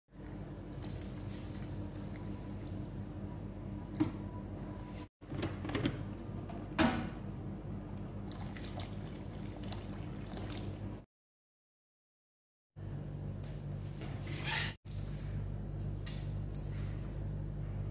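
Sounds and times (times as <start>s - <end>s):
water pouring into a bowl: 0.6s - 2.7s, 8.3s - 10.8s.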